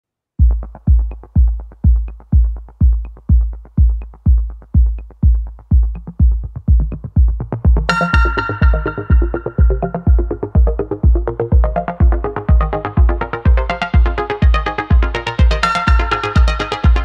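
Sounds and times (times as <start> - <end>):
electronic dance music: 0.4 - 17.0
heavy kick drum: 0.4 - 17.0
ticking hi-hats: 0.4 - 17.0
bright synth: 7.9 - 17.0.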